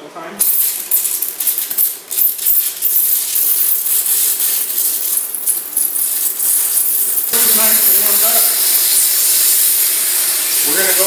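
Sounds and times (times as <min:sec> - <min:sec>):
plasma torch hissing and crackling: 0:06.1 - 0:11.0.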